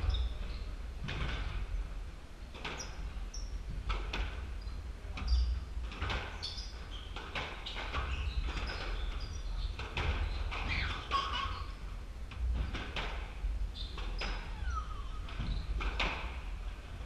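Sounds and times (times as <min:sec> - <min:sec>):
ball smacking court walls: 0:02.5 - 0:14.6, 0:15.2 - 0:16.7
shoes squeaking on wooden floor: 0:05.2 - 0:11.9, 0:13.8 - 0:16.4.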